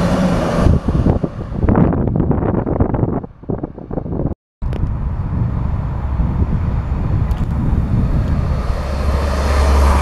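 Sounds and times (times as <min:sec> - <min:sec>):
passenger train passing: 0:00.0 - 0:02.7, 0:04.8 - 0:10.0
wind buffeting microphone: 0:00.0 - 0:10.0.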